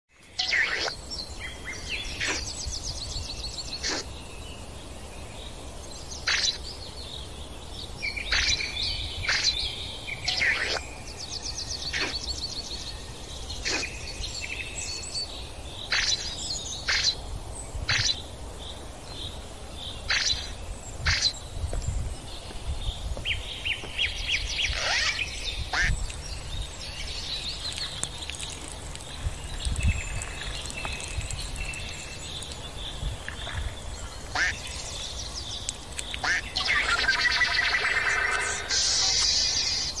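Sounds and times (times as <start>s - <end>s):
birds chirping and trilling: 0.1s - 40.0s.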